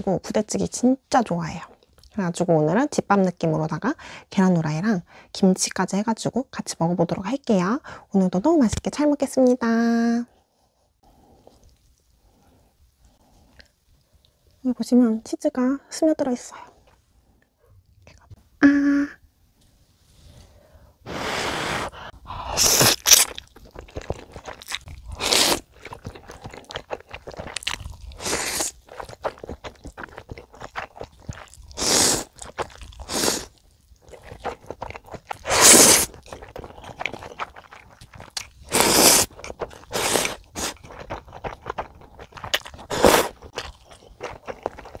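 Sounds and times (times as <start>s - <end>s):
noodles being slurped: 22.5s - 45.0s
wet chewing clicks: 22.8s - 45.0s.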